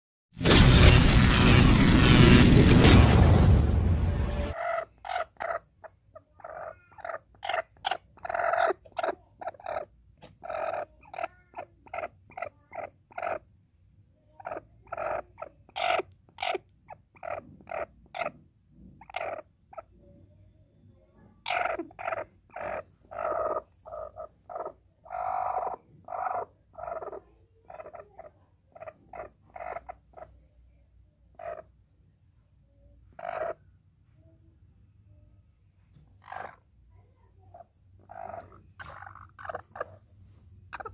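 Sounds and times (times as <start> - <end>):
loud crash: 0.4 - 4.6
hen clucking: 4.5 - 13.5, 14.4 - 20.0, 21.4 - 30.5, 31.3 - 31.7, 33.1 - 33.7, 36.0 - 36.7, 37.4 - 40.0, 40.7 - 40.9.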